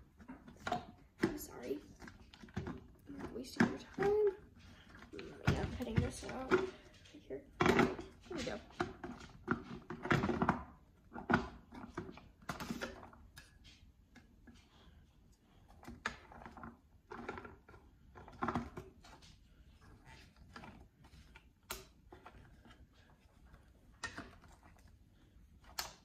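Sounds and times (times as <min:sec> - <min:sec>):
plastic food processor parts clacking: 0:07.5 - 0:13.6, 0:15.7 - 0:19.2.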